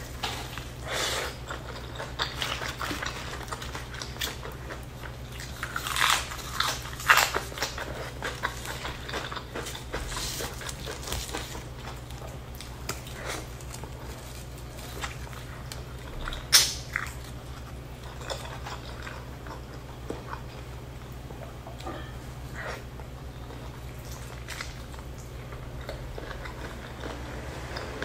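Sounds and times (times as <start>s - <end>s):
chewing and biting food: 0.3s - 20.8s, 22.5s - 28.0s
lettuce crunching: 1.4s - 20.4s.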